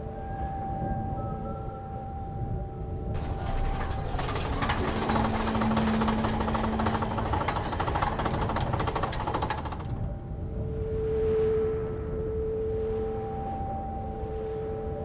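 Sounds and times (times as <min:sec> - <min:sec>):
rapid ticking: 0:03.2 - 0:10.2.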